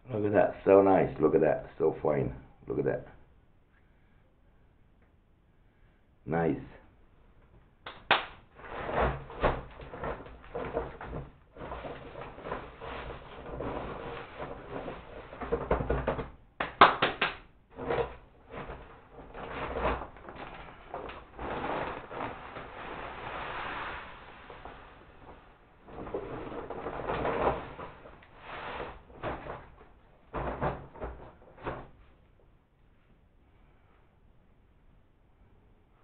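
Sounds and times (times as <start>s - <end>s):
feed sacks rustling: 8.5s - 16.3s, 17.7s - 32.2s
knocks and scrapes from handling: 8.5s - 16.4s, 17.7s - 32.2s.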